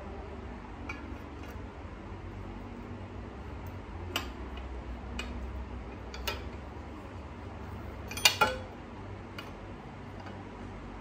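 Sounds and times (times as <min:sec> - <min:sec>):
metal tubes clinking together: 0:08.0 - 0:08.7.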